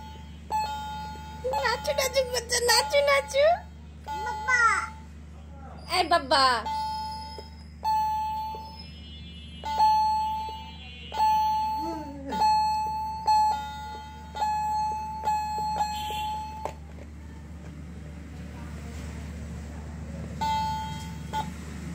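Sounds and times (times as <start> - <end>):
toy keyboard beeping notes: 0.0 - 5.1, 5.9 - 16.8, 20.4 - 21.9.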